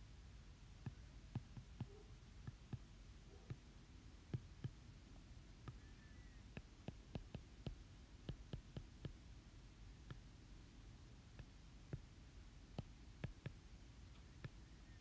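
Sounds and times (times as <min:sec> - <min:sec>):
stylus tapping on tablet screen: 0:00.8 - 0:04.8, 0:05.6 - 0:09.3, 0:10.0 - 0:10.3, 0:11.1 - 0:15.0.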